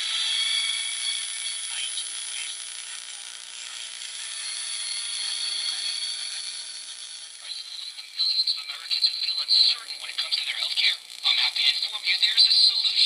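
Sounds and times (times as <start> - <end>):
thin steady whistling tones: 0.0 - 2.6, 4.2 - 9.6
radio receiver static hiss: 1.6 - 13.0.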